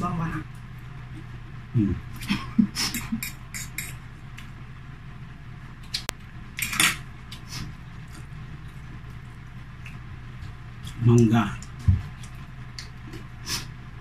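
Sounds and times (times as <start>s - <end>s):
cutlery clicking on plates: 3.1s - 4.0s.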